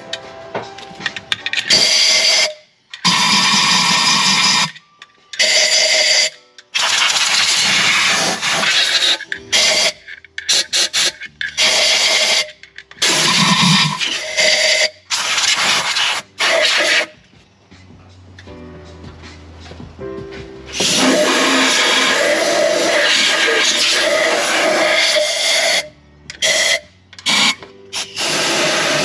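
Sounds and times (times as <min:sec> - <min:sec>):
compressed air blow gun hissing: 0:05.5 - 0:17.2, 0:20.7 - 0:29.0.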